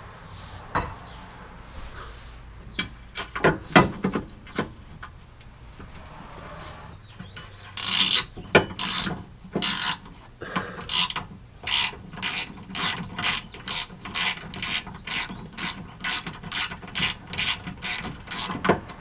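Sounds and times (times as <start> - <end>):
socket ratchet clicking: 10.8 - 18.6.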